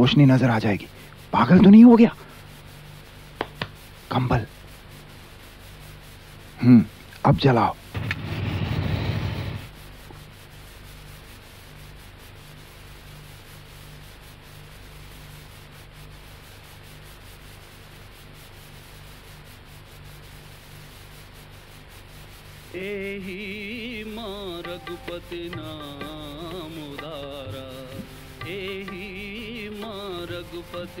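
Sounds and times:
person singing a chant: 0:22.8 - 0:31.0.

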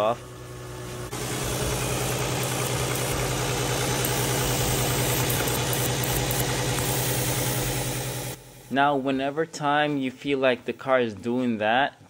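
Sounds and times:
car engine idling roughly: 0:01.1 - 0:08.4.

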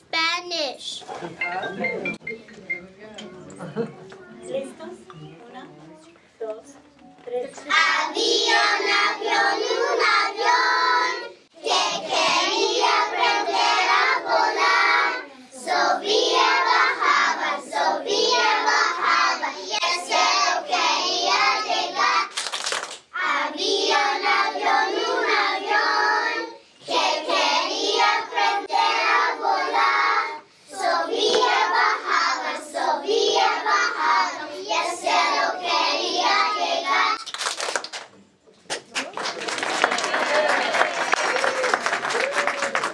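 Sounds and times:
children singing in unison: 0:07.6 - 0:22.3, 0:23.2 - 0:37.2.

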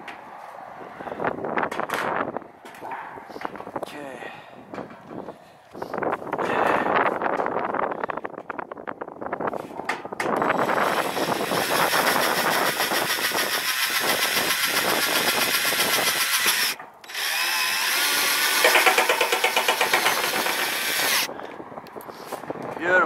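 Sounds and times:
cordless drill driving screws into steel: 0:10.4 - 0:21.3.

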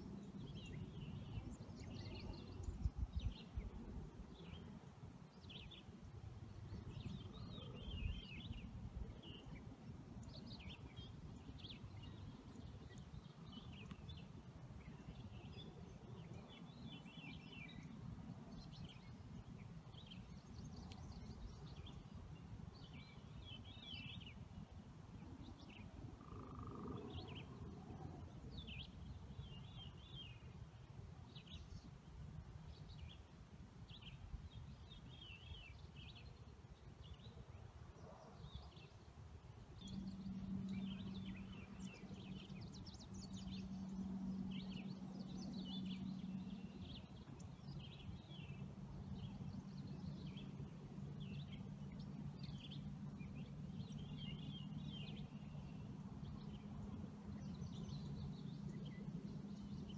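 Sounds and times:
steady low hum: 0:39.0 - 0:59.9.

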